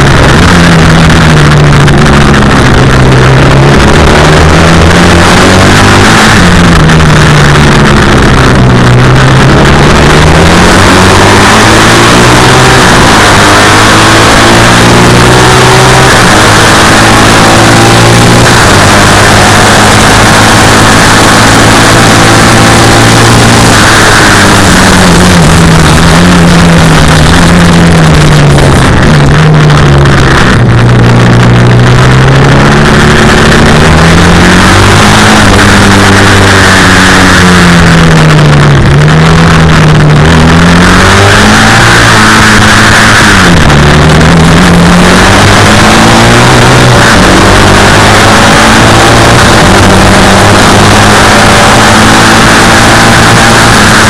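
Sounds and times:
racing engine revving hard: 0.0s - 54.0s.

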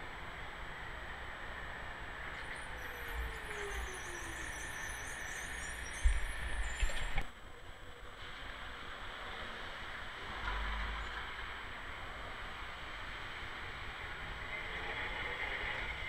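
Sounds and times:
tram rumbling on track: 2.4s - 7.2s, 12.8s - 16.0s.

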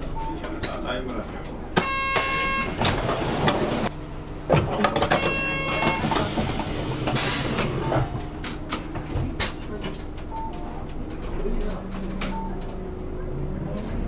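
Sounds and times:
bus engine idling: 0.0s - 4.4s, 5.4s - 11.9s.

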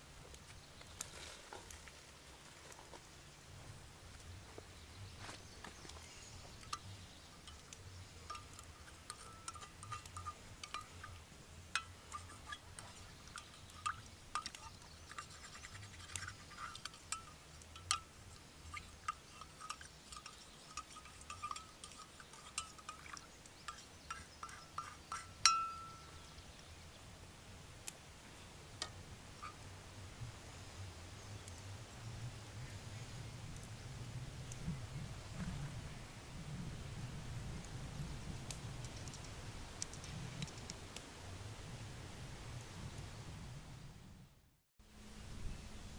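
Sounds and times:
spoon stirring in metal mug: 6.6s - 26.1s
mug ringing: 6.7s - 11.2s, 19.0s - 26.2s.

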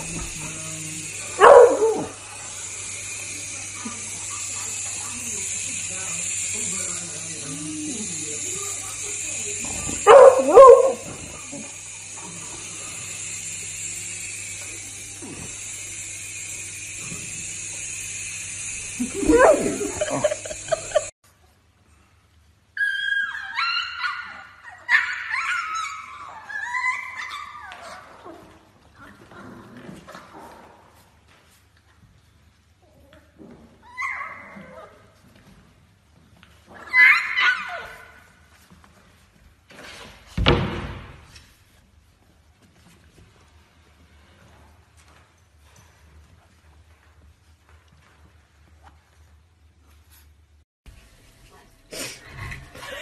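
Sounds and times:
toy helicopter whirring: 0.0s - 21.2s
dog howling: 1.4s - 2.2s, 19.1s - 20.4s
dog whining: 19.0s - 21.0s
puppy crying: 19.1s - 21.1s.

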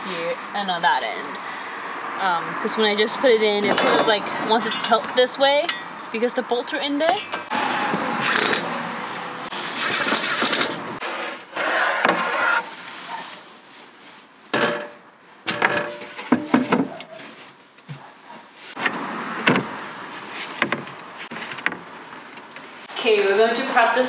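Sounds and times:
metal brackets clattering: 9.8s - 10.9s, 14.6s - 17.0s.

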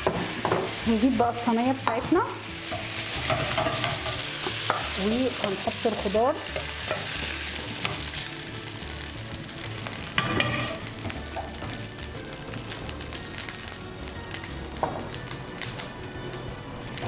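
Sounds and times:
vegetables sizzling: 0.0s - 17.0s.

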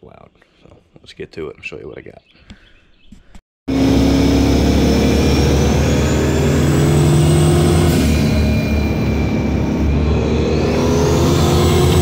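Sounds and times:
high turbo whistle: 3.7s - 12.0s
loud engine drone: 3.7s - 12.0s
road noise: 3.7s - 12.0s.

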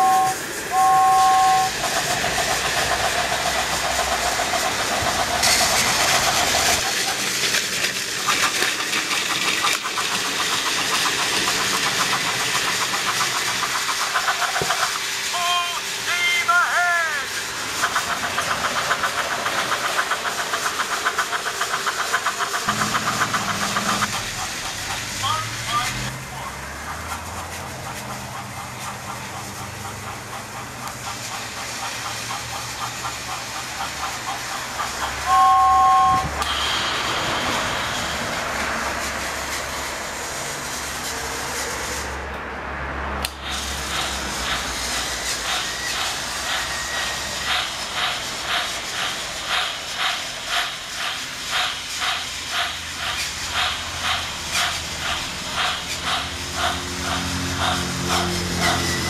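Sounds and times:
loud two-note tone: 0.0s - 1.7s
toy train clicking: 0.0s - 41.6s, 43.2s - 59.0s
toy train motor hum: 0.0s - 42.3s, 43.2s - 59.0s.

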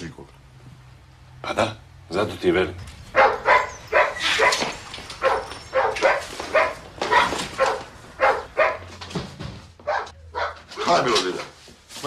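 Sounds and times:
dogs barking: 3.1s - 9.0s, 9.8s - 11.0s.

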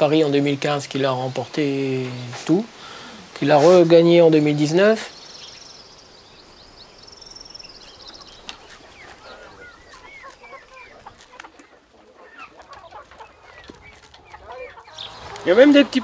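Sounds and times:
hens clucking: 6.6s - 16.0s.

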